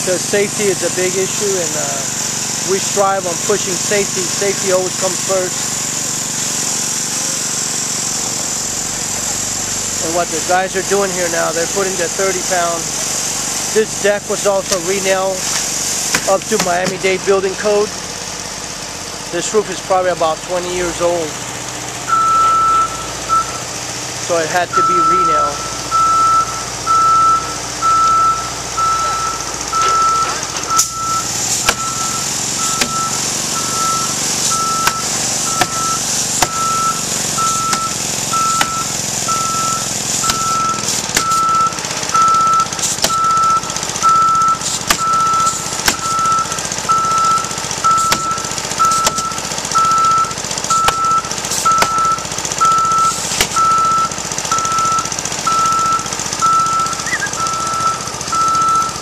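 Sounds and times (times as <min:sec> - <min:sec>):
warning alarm beeping: 0:22.1 - 0:23.7, 0:24.5 - 0:59.0.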